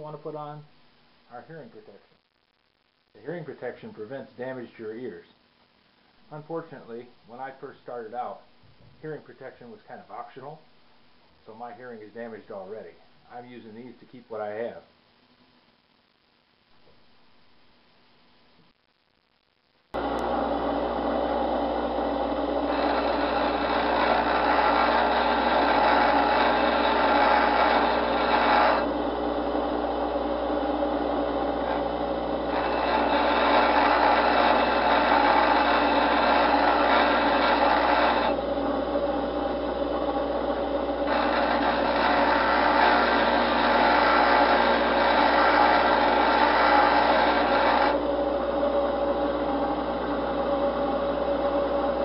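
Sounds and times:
grinder wheel grinding steel: 20.0s - 52.0s.

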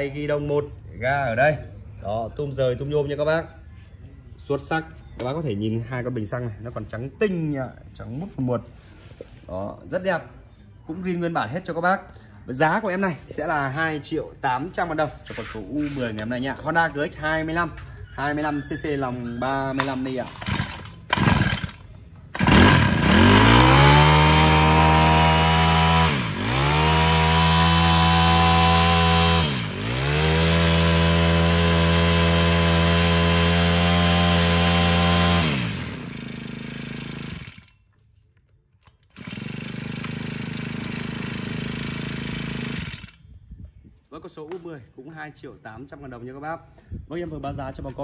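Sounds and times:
brush-cutter engine revving: 19.8s - 37.8s, 38.9s - 43.2s.

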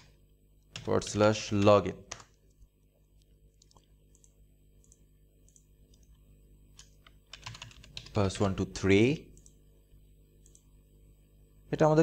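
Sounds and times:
keyboard and mouse clicks: 3.5s - 6.2s, 9.3s - 9.6s, 10.4s - 10.7s.

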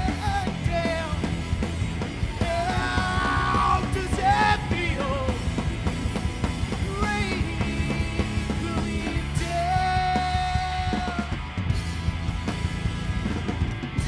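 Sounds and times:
drum kit: 0.0s - 14.0s
electric guitar: 0.0s - 14.0s
person singing: 2.4s - 5.5s, 6.8s - 11.4s.

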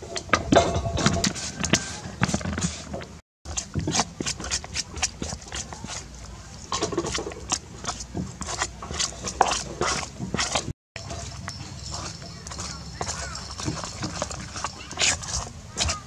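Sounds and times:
spoon scraping metal bowl: 0.1s - 16.0s.

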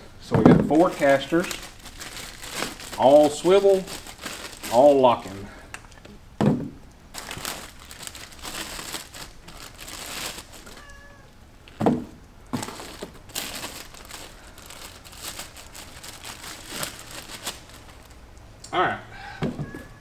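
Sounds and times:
plastic bags crinkling: 0.4s - 6.1s, 7.1s - 18.5s
cat meow: 10.6s - 11.4s, 19.2s - 20.0s.

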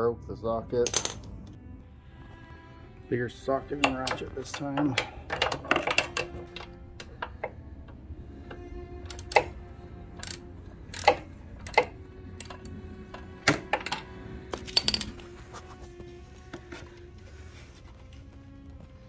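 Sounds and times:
background music: 0.0s - 19.0s
ratchet and socket clinking: 0.8s - 1.3s, 10.2s - 12.6s, 14.7s - 15.2s.

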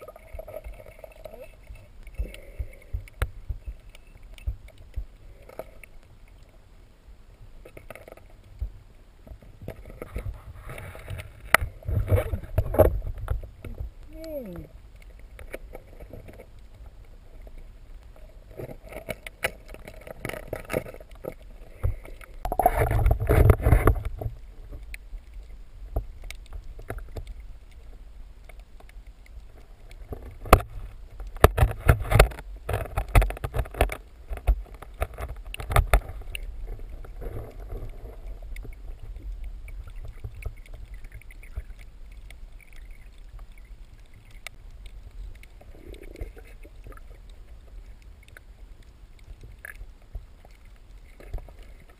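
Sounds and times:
underwater water rush: 0.0s - 51.9s.

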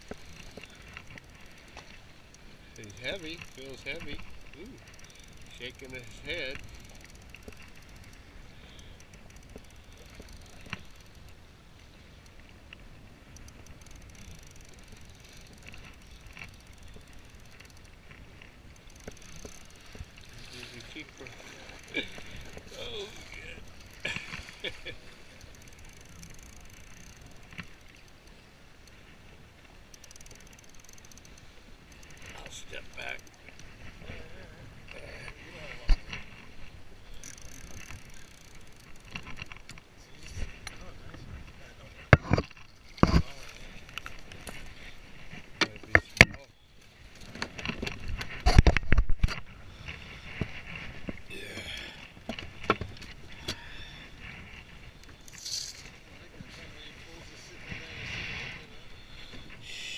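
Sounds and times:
fishing reel ticking: 0.0s - 33.8s, 36.2s - 39.9s, 52.9s - 56.0s
wind and water rumble: 0.0s - 59.9s.

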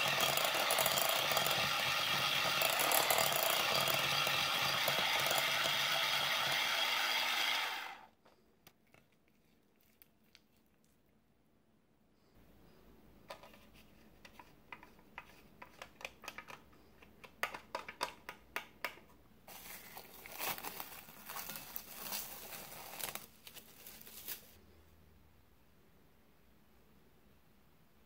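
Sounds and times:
foil pan crinkling under brush: 19.5s - 24.6s.

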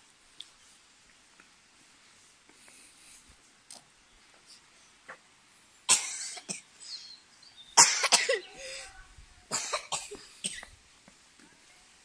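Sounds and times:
person coughing: 7.8s - 8.5s, 9.5s - 10.7s.

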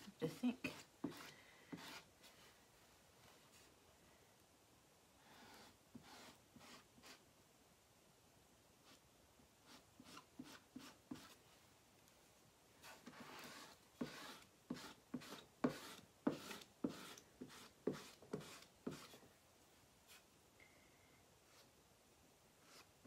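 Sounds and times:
squeegee rubbing on chalkboard: 0.3s - 2.4s, 12.8s - 19.2s.

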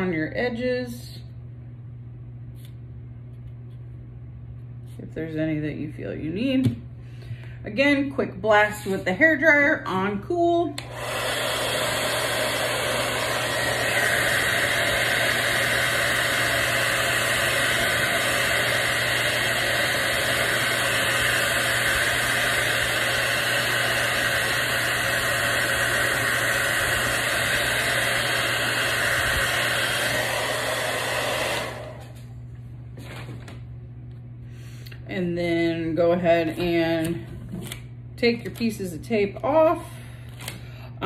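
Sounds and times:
hair dryer blowing: 7.7s - 32.4s.

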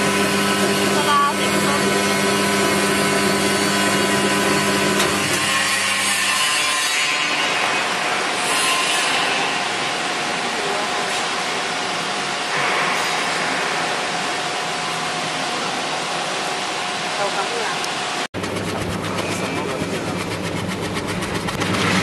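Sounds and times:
slicing machine motor hum: 0.0s - 6.3s, 18.4s - 22.0s.

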